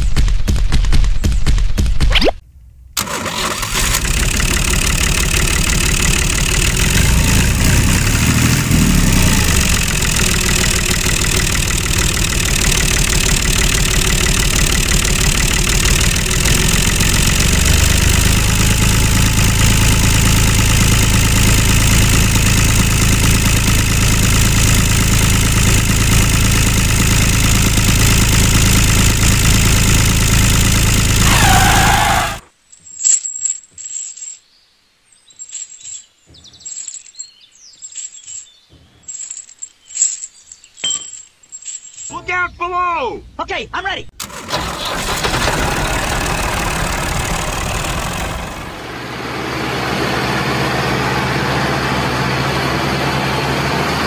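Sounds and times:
tractor engine running: 0.0 - 34.3, 44.1 - 54.0.

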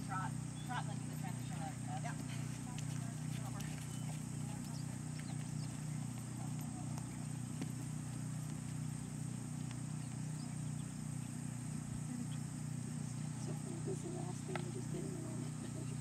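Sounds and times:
horse hoofbeats on sand: 0.0 - 11.3
steady low hum: 0.0 - 16.0.

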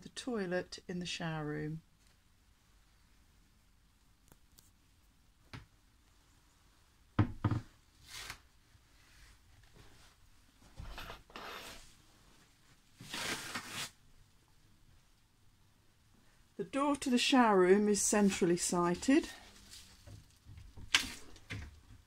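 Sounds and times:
cupboard door knocks: 7.2 - 7.6
plastic sheeting crinkling underfoot: 19.0 - 21.4.

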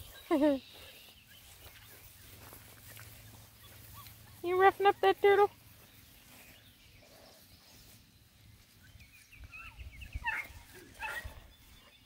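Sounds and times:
puppy whining and yipping: 9.6 - 11.4.

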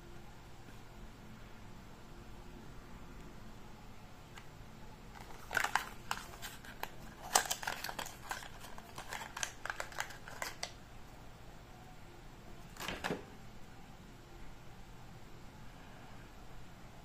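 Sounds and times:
card rustling: 5.1 - 10.8, 12.6 - 13.2.

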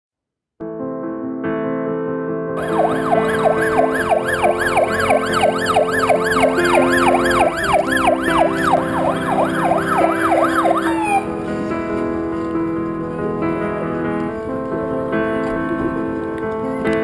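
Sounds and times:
fire engine siren: 2.6 - 11.4.

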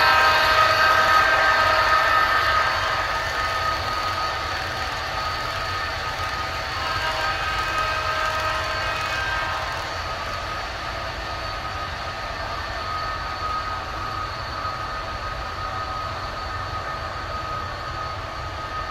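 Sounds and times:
model train rolling on track: 0.0 - 18.9.

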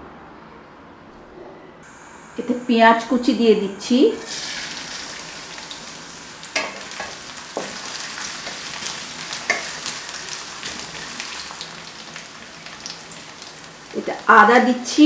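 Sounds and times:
onions sizzling in hot oil: 4.1 - 15.0.

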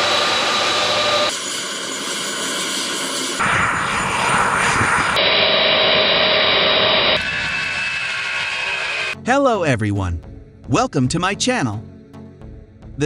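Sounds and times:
jet engines whining: 0.0 - 9.2.

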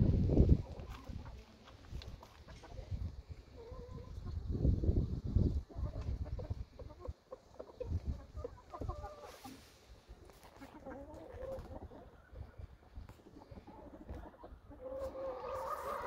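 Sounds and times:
chickens clucking: 0.2 - 16.0.

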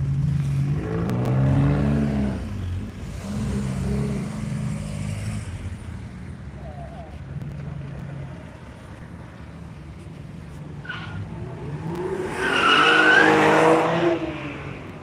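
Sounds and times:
car engine passing fast: 11.2 - 15.0.

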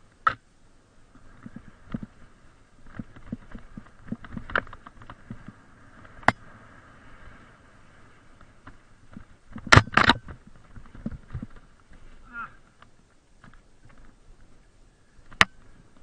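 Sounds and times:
mountain bike rattling on dirt: 1.2 - 14.4.

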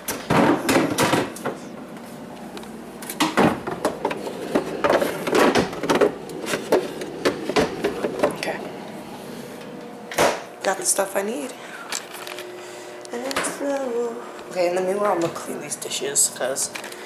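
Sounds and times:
containers clattering on shelves: 0.0 - 1.7, 3.1 - 8.6.

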